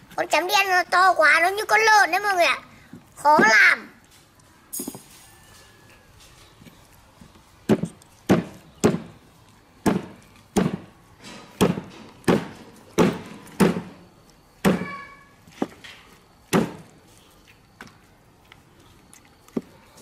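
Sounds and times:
knife chopping on wooden block: 9.8 - 10.8, 11.6 - 13.9.

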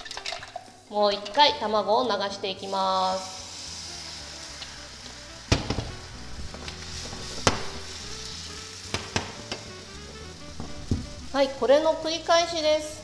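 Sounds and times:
egg sizzling in a frying pan: 0.0 - 13.0
frying pan knocks: 5.5 - 6.0, 6.6 - 7.9, 8.9 - 9.7, 10.6 - 11.3.

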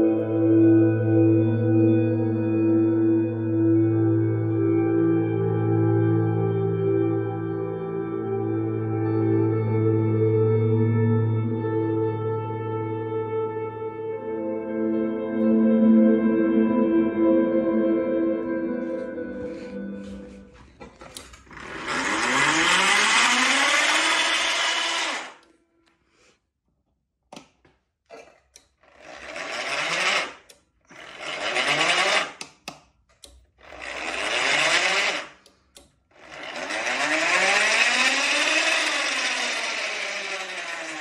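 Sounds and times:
small electric motor whirring: 21.2 - 25.5, 28.6 - 32.6, 33.6 - 41.0.

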